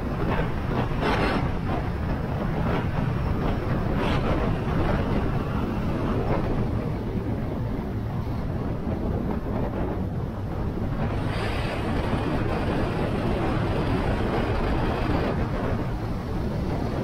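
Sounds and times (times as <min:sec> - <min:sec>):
wind on microphone: 0:00.0 - 0:17.0.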